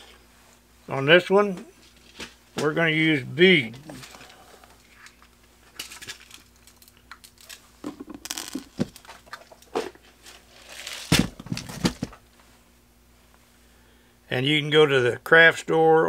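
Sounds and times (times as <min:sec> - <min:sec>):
plastic packaging crinkling: 0:03.9 - 0:12.1.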